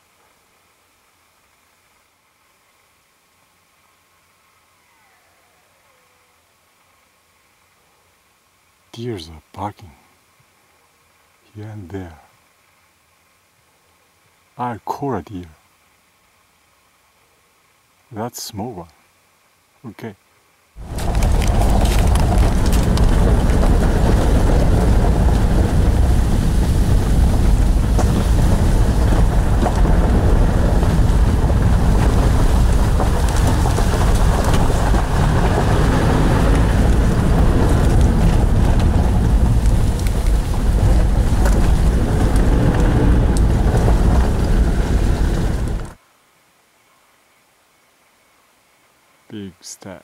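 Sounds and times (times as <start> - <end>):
small clicks and rattles: 20.8 - 25.5
car engine and tyres on gravel: 20.8 - 46.0.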